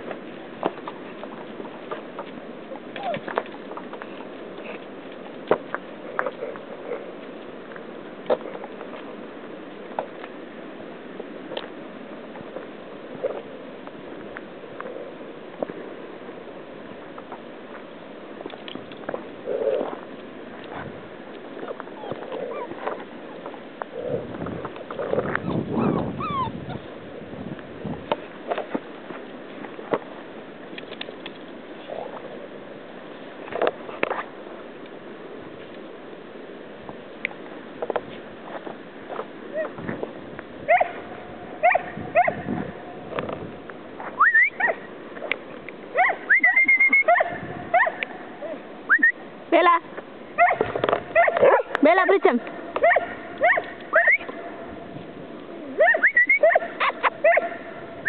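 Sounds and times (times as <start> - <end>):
puppy high-pitched whine: 2.9 - 3.3, 21.6 - 23.0, 25.3 - 26.8
puppies whining and yipping: 2.9 - 3.4, 21.6 - 23.0, 25.3 - 26.9, 44.2 - 44.8, 46.0 - 47.9, 52.8 - 54.3, 55.8 - 57.5.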